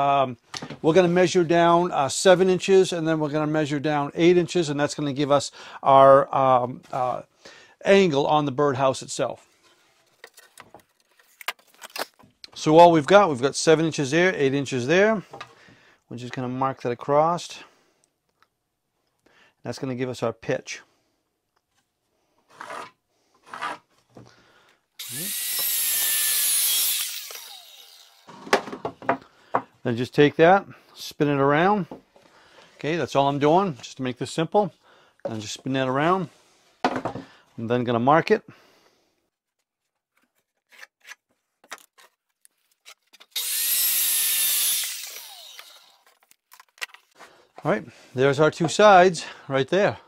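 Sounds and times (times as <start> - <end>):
circular saw cutting board: 25.0 - 28.7, 43.4 - 46.1.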